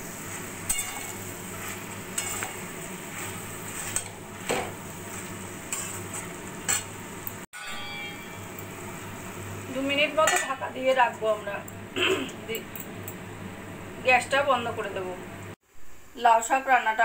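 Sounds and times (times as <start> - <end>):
metal spatula scraping a pan: 0.1 - 7.0.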